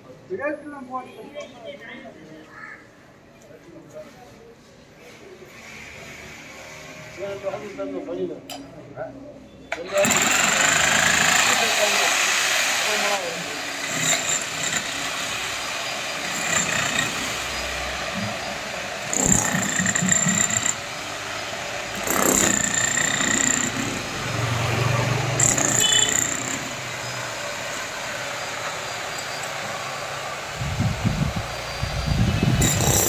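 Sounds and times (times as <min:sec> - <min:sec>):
electric breaker chipping concrete: 0:09.9 - 0:31.3, 0:32.2 - 0:33.0.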